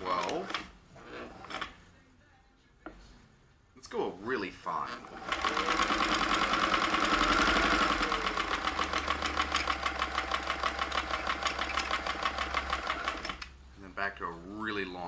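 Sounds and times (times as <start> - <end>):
sewing machine stitching: 0.0 - 1.8, 4.9 - 13.5.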